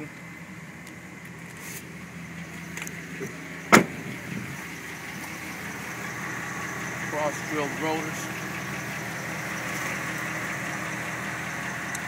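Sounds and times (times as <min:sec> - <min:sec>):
engine idling: 0:00.0 - 0:12.0
truck door slamming: 0:03.2 - 0:04.4.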